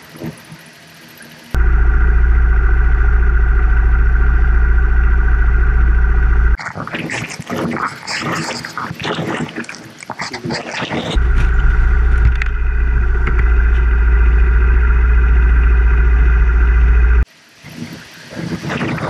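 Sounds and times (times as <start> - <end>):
motorcycle engine idling: 1.6 - 6.6, 11.2 - 17.3
rough road noise: 11.2 - 17.3.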